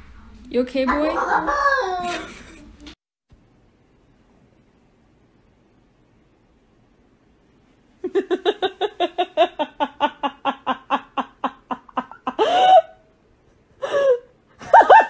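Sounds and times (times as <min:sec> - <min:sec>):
person laughing: 0:01.0 - 0:02.8, 0:08.0 - 0:13.0.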